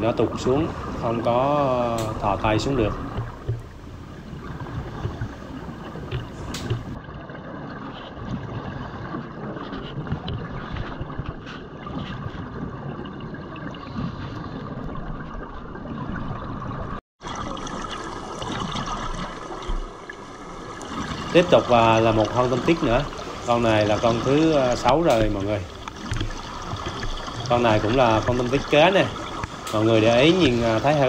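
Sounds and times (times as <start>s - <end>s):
muffled underwater rushing: 0.0s - 31.0s
faint underwater clicks: 0.4s - 7.2s, 18.4s - 31.0s.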